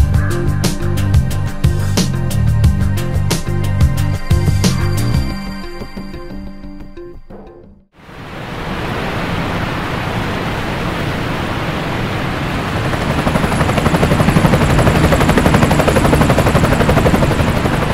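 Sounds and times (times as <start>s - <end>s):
helicopter rotor blades beating: 0.0s - 6.4s, 10.1s - 17.9s
steady rushing noise: 8.0s - 17.9s.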